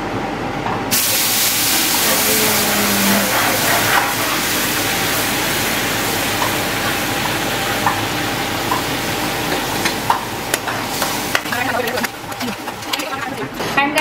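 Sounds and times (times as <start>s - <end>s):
sugar water hissing in a pan: 0.9s - 9.4s.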